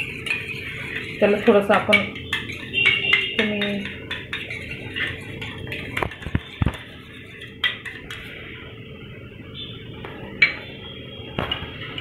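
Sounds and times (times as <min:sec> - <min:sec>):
spoon scraping a bowl: 0:00.0 - 0:08.5.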